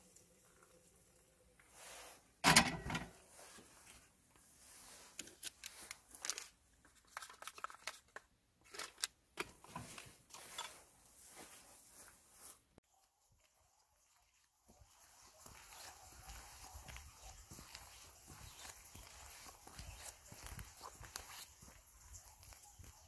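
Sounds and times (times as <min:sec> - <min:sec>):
kettle clunking into box: 0:02.4 - 0:03.2.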